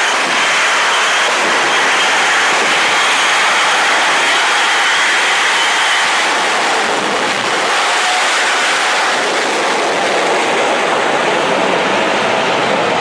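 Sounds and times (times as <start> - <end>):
jet engine roaring: 0.0 - 13.0.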